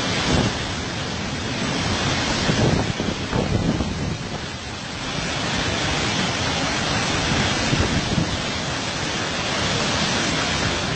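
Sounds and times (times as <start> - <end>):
stream rushing over rocks: 0.0 - 10.9.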